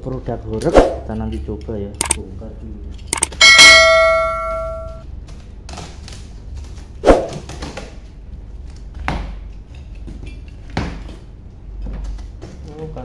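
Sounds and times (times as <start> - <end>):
metal object clanging: 3.2 - 5.0.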